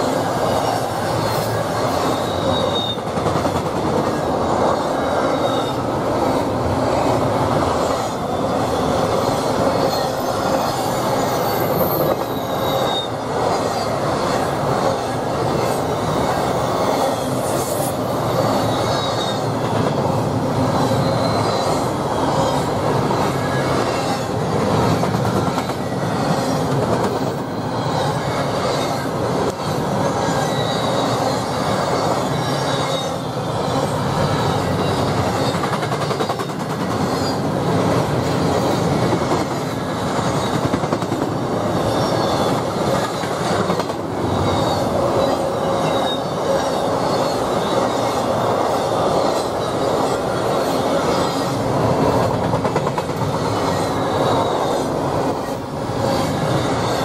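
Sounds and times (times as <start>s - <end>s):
freight train wheels on rail: 0.0s - 57.0s
rail clacks: 0.0s - 57.0s
wheel squeal: 0.5s - 3.1s, 4.9s - 5.9s, 8.3s - 14.4s, 16.6s - 19.6s, 20.8s - 24.3s, 27.5s - 36.4s, 41.8s - 43.4s, 44.2s - 48.9s.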